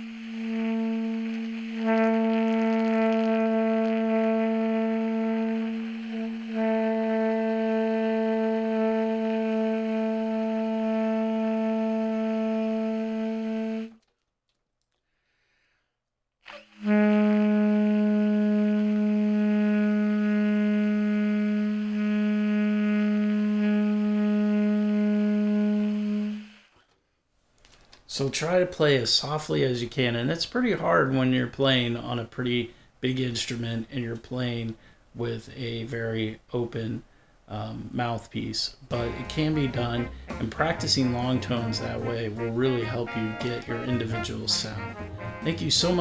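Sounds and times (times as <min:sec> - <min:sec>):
baritone saxophone long tones: 0:00.0 - 0:14.0, 0:16.5 - 0:26.7, 0:38.9 - 0:46.0.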